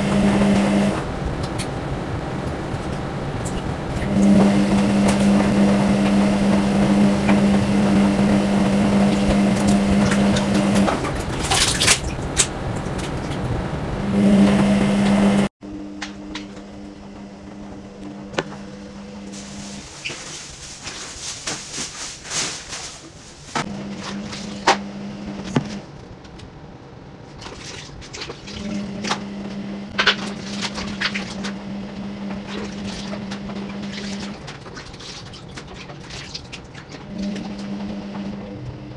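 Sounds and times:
loud rush of noise: 0.0s - 15.5s
steady low hum: 0.0s - 34.9s
water dripping and splashing: 9.7s - 13.5s
water sloshing in a plastic tub: 27.3s - 29.2s, 32.4s - 37.7s.

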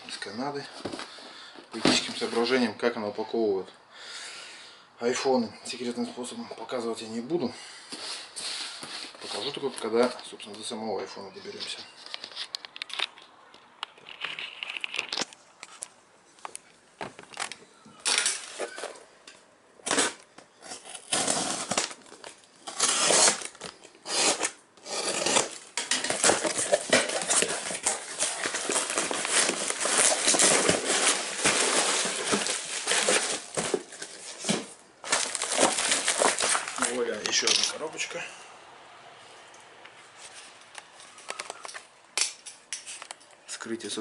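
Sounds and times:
plastic wrapping crinkling: 11.4s - 15.9s, 19.8s - 37.9s
tape and cardboard ripping: 17.4s - 19.0s, 19.8s - 37.8s.

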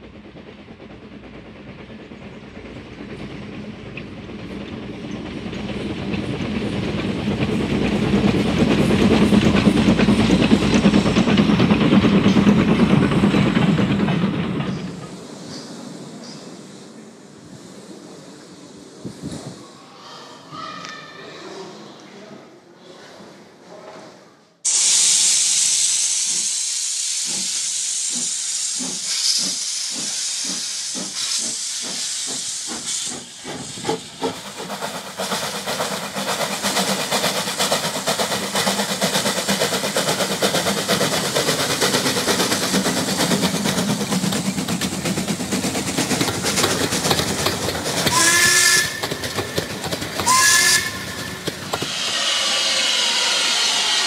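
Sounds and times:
steam locomotive exhaust beats: 0.0s - 19.5s, 24.7s - 54.0s
steam hissing: 24.7s - 54.0s
train whistle blasts: 48.1s - 49.1s, 50.2s - 51.3s.

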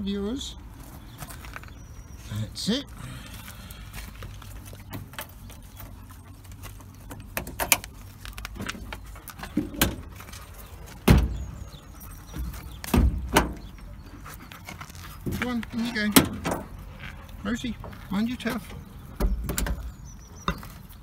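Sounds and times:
sharp knocks and thumps: 12.3s - 13.7s.

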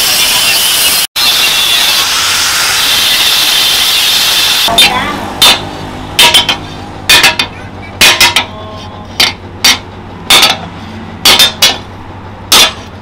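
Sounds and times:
hammer striking steel on anvil: 4.7s - 11.9s, 12.5s - 12.9s.

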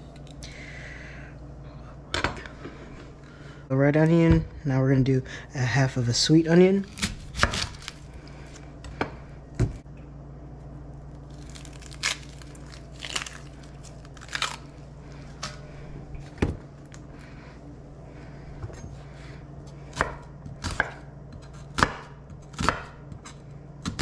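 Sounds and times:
low steady hum: 0.0s - 24.0s
onion skin crunching: 6.8s - 8.7s, 11.1s - 15.6s.

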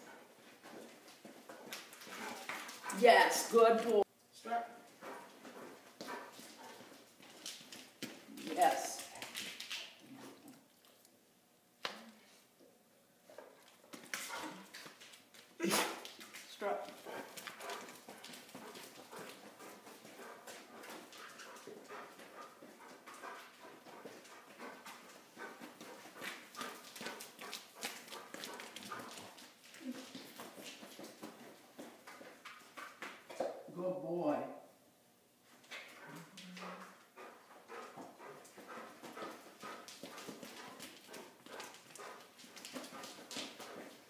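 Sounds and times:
footsteps: 0.0s - 11.0s, 13.3s - 33.6s, 35.5s - 44.0s
dog nails clicking on concrete: 5.0s - 11.1s, 13.6s - 33.5s, 35.7s - 44.0s.

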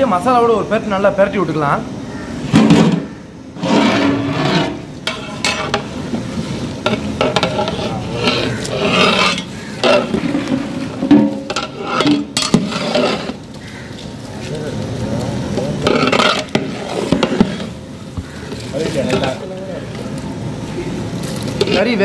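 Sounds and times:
light sizzle: 0.0s - 22.0s
metal ladle scraping pot: 2.4s - 13.6s, 15.7s - 19.5s, 21.5s - 22.0s.

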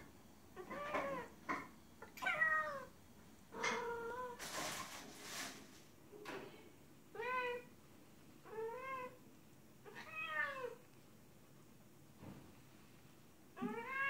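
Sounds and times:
cat meowing: 2.1s - 2.9s, 9.9s - 10.8s, 13.6s - 14.0s.

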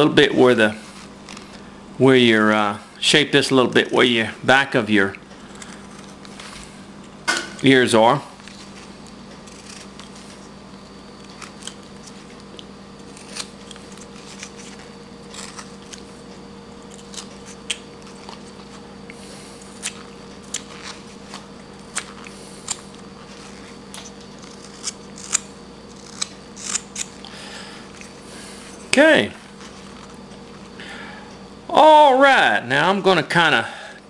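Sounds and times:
steady low hum: 0.0s - 34.0s
knife cutting wood: 8.4s - 10.6s, 13.0s - 16.1s, 19.6s - 27.3s.

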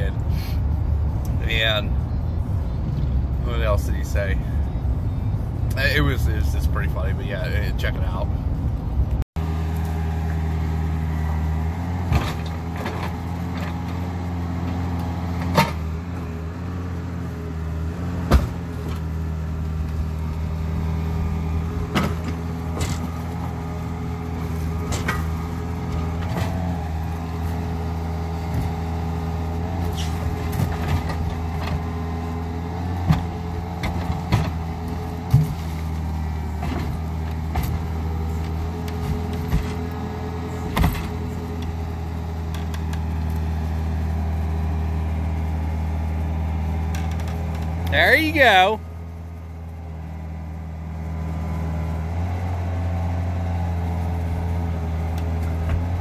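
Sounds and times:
excavator diesel engine running: 0.0s - 56.0s
bucket scraping and clanking on tank: 21.9s - 23.2s, 29.8s - 32.0s.

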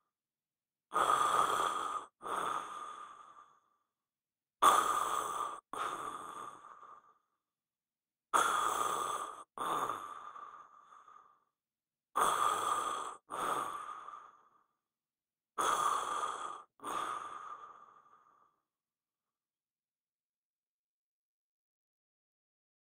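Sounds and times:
man snoring: 8.4s - 10.5s, 12.2s - 14.1s, 15.6s - 17.4s.

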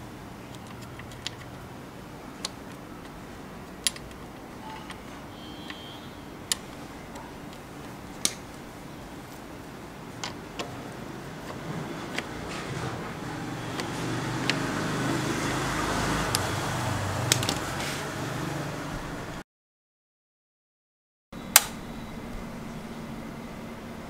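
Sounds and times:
plastic part clicking: 3.8s - 5.0s.

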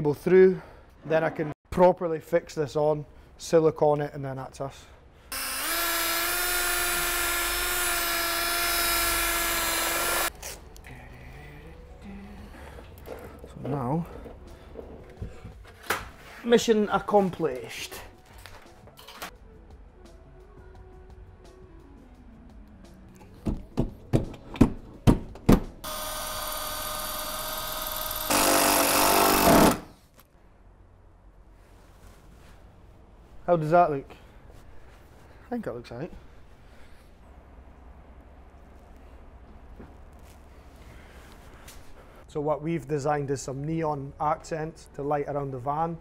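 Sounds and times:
electric drill whining: 5.3s - 10.3s, 25.8s - 29.8s.

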